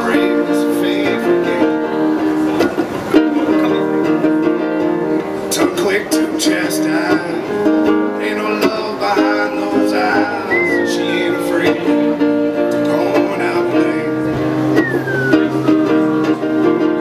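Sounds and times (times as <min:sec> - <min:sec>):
acoustic guitars strumming: 0:00.0 - 0:17.0
high gliding note: 0:14.8 - 0:16.1.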